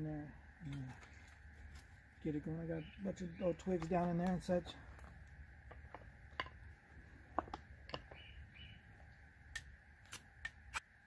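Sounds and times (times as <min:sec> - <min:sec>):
knife clicking against fire-starting rod: 0:09.5 - 0:10.8.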